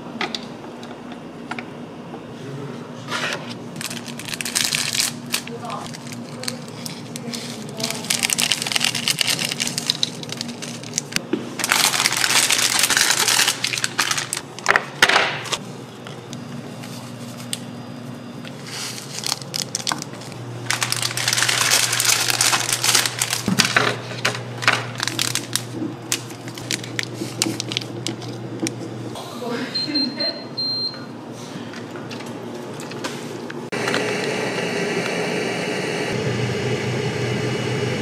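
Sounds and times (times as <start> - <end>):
foil packets crinkling: 3.8 - 14.8, 18.5 - 28.4.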